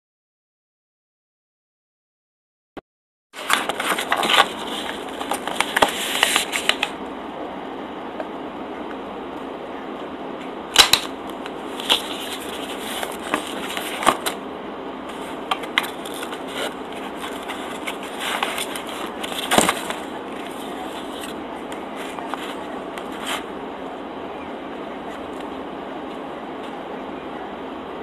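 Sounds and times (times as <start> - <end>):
plastic container crackling and snapping: 10.8 - 12.1.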